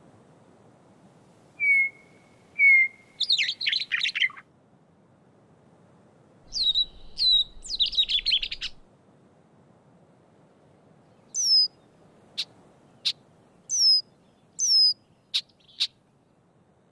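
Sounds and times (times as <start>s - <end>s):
songbird whistling and gurgling: 1.6s - 4.4s, 6.5s - 8.8s, 11.3s - 11.7s, 13.0s - 15.9s
low hum: 6.5s - 8.9s.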